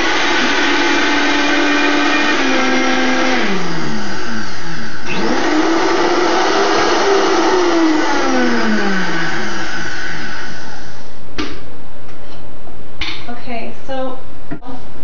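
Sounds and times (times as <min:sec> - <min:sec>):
blender motor running: 0:00.0 - 0:11.0.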